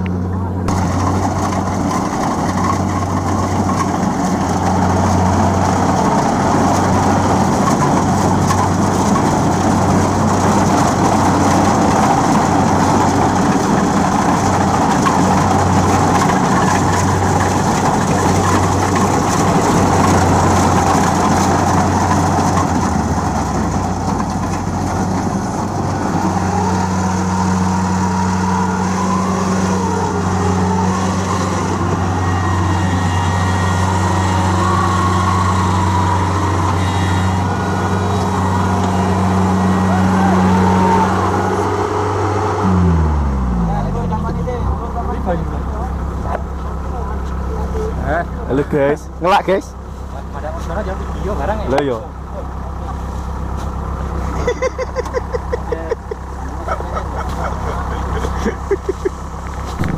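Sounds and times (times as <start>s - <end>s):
combine harvester diesel engine: 0.0s - 59.9s.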